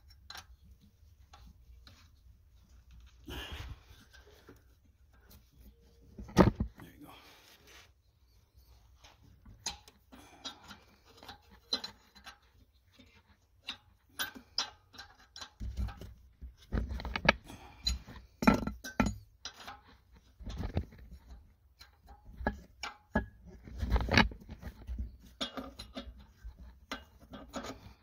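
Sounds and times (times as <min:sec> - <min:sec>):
wrench clinking on metal: 0:17.6 - 0:19.8.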